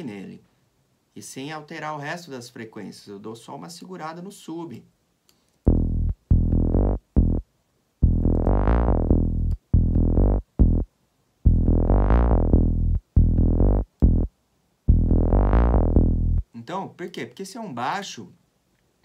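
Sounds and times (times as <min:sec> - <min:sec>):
synth bass line: 0:05.7 - 0:07.4, 0:08.0 - 0:10.9, 0:11.5 - 0:14.3, 0:14.9 - 0:16.4.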